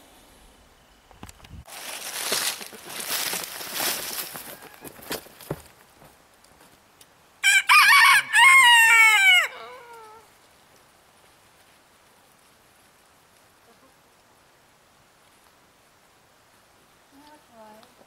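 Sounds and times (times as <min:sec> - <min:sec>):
rooster crowing: 0:04.4 - 0:05.0, 0:07.4 - 0:10.2.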